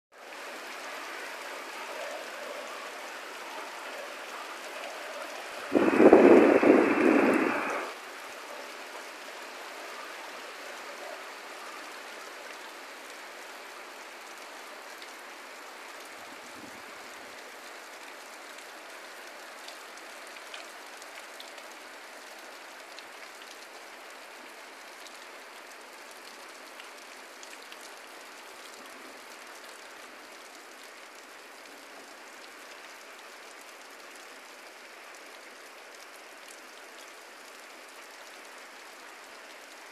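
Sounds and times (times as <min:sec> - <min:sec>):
heavy rain falling: 0:00.1 - 0:39.9.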